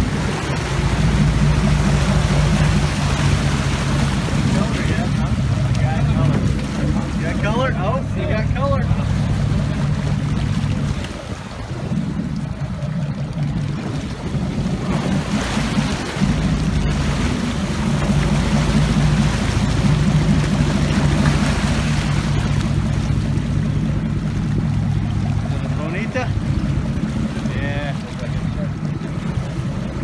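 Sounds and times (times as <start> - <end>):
boat engine humming: 0.0 - 30.0
water rushing and splashing: 0.0 - 30.0
wind on microphone: 8.9 - 25.8.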